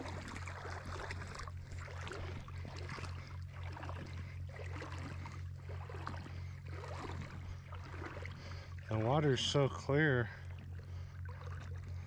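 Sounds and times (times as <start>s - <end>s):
steady low hum: 0.0s - 12.0s
water lapping and gurgling: 0.0s - 12.0s.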